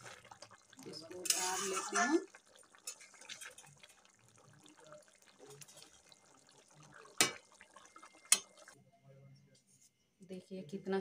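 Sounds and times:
gravy simmering in a pot: 0:00.0 - 0:08.8.

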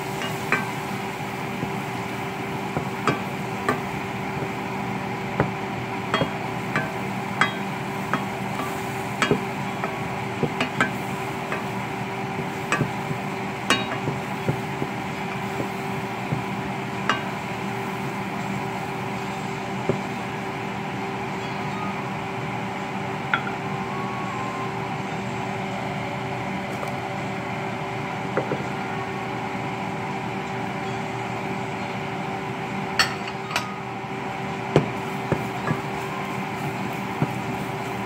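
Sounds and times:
steady sizzle: 0:00.0 - 0:21.4, 0:34.0 - 0:38.0
constant hum: 0:00.0 - 0:38.0
spoon tapping against pot: 0:05.4 - 0:11.7, 0:12.6 - 0:16.5, 0:17.1 - 0:17.4
wooden spoon stirring in saucepan: 0:34.8 - 0:38.0.

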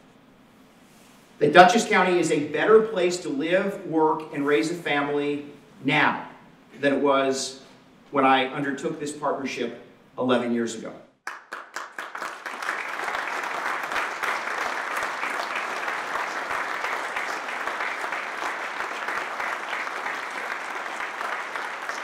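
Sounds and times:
audience applauding: 0:11.3 - 0:22.0.

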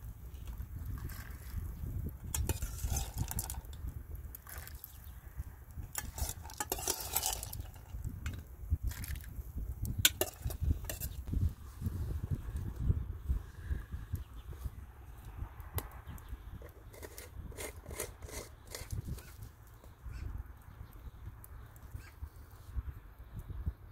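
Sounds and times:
metal ladle clinking on pot: 0:05.9 - 0:07.8.

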